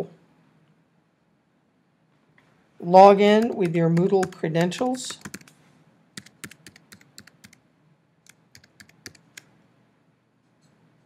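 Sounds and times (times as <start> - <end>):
computer keyboard typing: 3.3 - 5.6, 6.2 - 7.6, 8.3 - 9.5.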